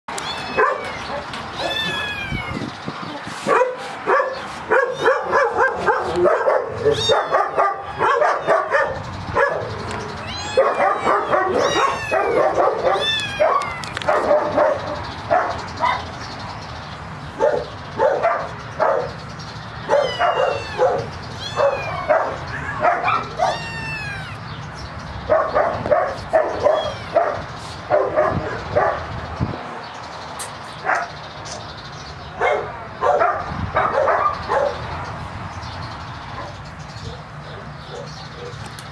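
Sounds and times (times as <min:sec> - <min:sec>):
kittens mewing: 0:00.1 - 0:03.3, 0:04.7 - 0:14.8, 0:19.8 - 0:24.6, 0:25.8 - 0:28.4.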